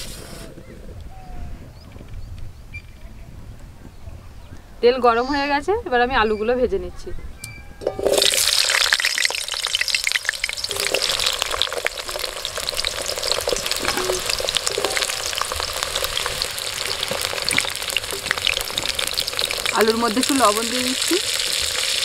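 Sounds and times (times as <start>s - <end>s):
potatoes sizzling in oil: 7.8s - 22.0s.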